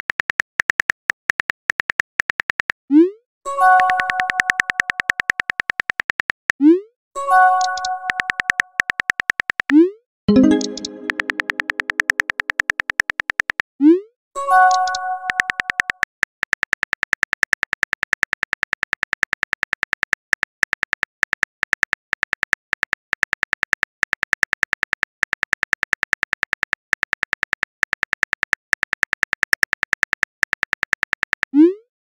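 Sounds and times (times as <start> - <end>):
keyboard clicks: 3.6 - 6.5, 7.3 - 13.7, 14.5 - 31.5
chime: 10.3 - 11.3, 14.4 - 15.4.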